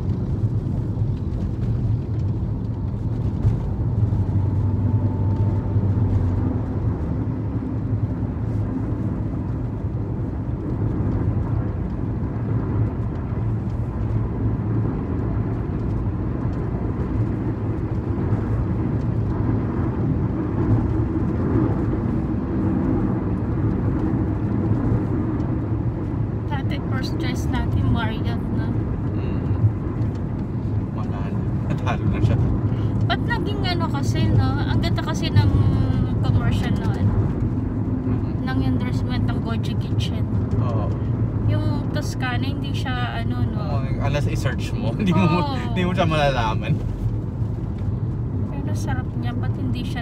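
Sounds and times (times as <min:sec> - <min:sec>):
car cabin road rumble: 0:00.0 - 0:50.0.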